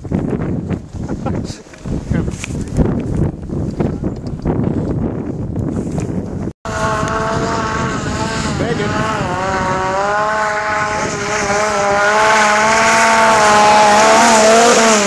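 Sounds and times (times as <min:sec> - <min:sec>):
snowmobile engine revving: 0:06.7 - 0:15.0.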